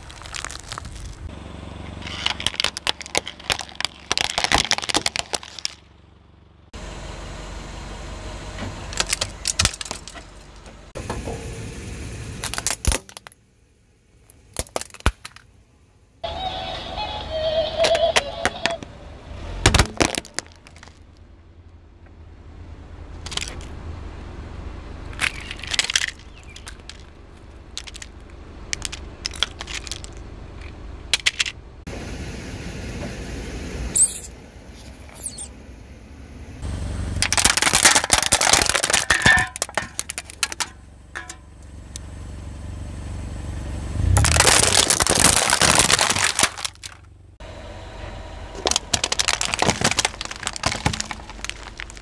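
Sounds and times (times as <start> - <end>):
toys cracking under car tyre: 0.0 - 1.3, 1.9 - 5.9, 8.9 - 10.6, 12.4 - 13.4, 14.3 - 15.5, 19.6 - 21.2, 23.2 - 23.7, 25.1 - 31.6, 37.2 - 42.0, 44.0 - 47.1, 48.6 - 52.0
low rumble of car: 0.0 - 52.0.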